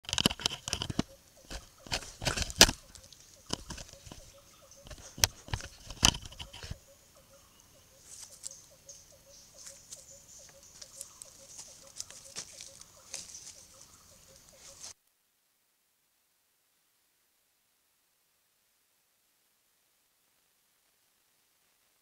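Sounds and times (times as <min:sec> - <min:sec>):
animals knocking against camera: 0:00.1 - 0:06.8
faint steady hum: 0:01.1 - 0:22.0.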